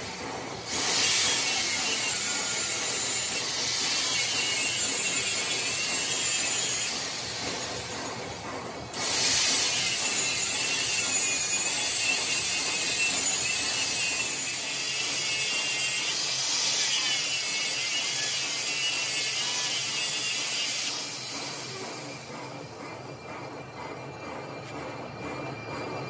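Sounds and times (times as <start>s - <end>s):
angle grinder grinding steel: 0.7s - 7.4s, 9.0s - 21.9s.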